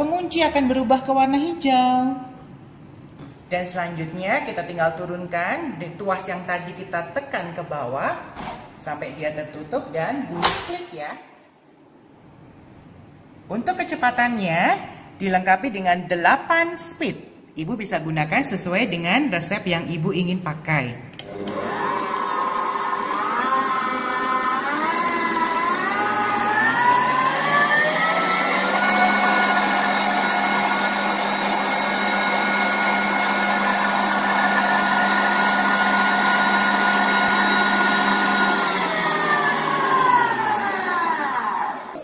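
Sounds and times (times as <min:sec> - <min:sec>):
stand mixer motor whining: 0:21.2 - 0:42.0.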